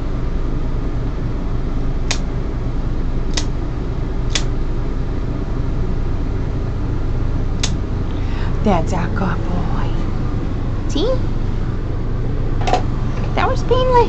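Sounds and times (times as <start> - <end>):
fan whirring: 0.0 - 14.0
nail clippers snipping: 3.3 - 3.5, 4.3 - 4.5.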